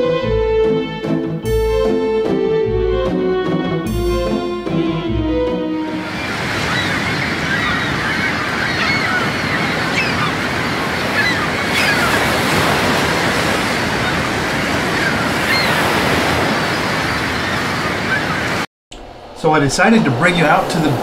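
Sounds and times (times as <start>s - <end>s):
surf breaking on beach: 5.9s - 18.7s, 19.3s - 21.0s.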